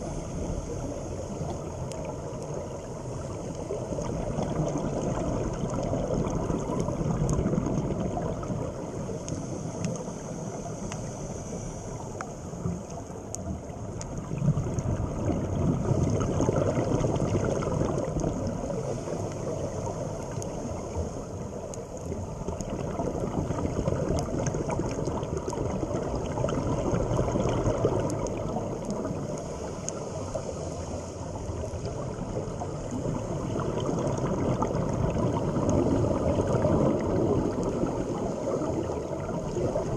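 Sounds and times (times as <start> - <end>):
gurgling exhaled bubbles: 0.0 - 39.9
faint clicks: 1.4 - 2.6, 9.2 - 11.2, 12.1 - 14.8, 21.5 - 22.8, 27.4 - 30.1
diver breathing underwater: 2.9 - 12.9.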